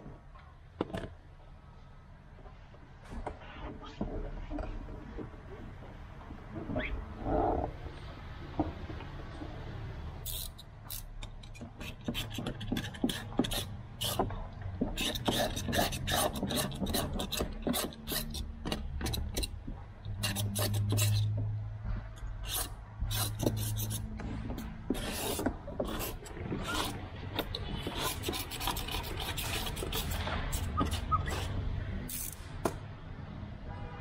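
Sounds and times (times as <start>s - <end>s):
scraping tint film on car glass: 10.2s - 21.5s, 22.4s - 32.5s.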